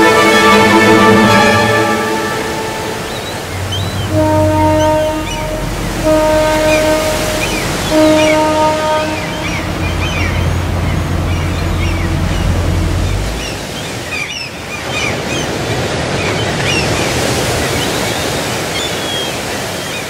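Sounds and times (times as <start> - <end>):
low rumble: 0.0 - 13.7
ocean waves breaking: 0.0 - 20.0.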